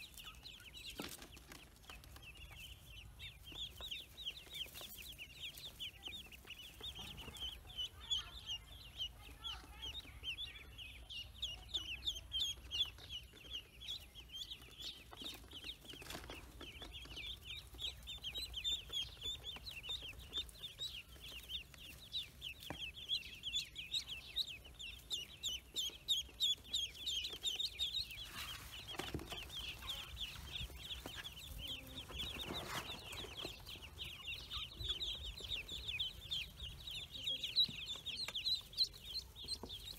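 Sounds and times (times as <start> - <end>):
ducklings peeping: 0.0 - 39.9
rustles of birds being handled: 0.0 - 39.9.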